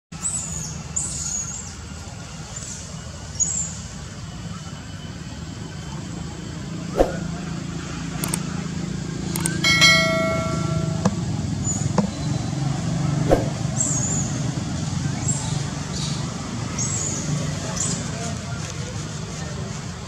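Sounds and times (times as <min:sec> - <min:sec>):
steady low hum: 0:05.3 - 0:12.0
bright bell-like ding: 0:09.6 - 0:11.3.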